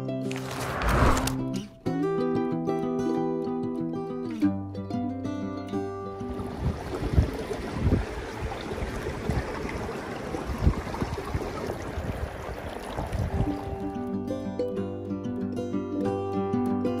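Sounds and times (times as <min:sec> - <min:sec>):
wind buffeting microphone: 0:06.4 - 0:13.8.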